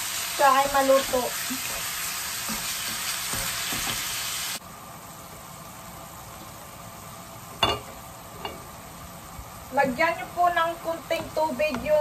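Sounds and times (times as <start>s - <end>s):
meat sizzling in a frying pan: 0.0s - 4.6s.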